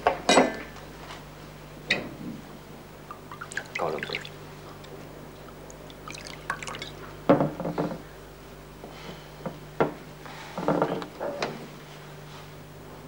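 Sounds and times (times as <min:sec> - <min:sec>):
liquid trickling into a glass: 0:03.2 - 0:04.4, 0:05.7 - 0:07.0.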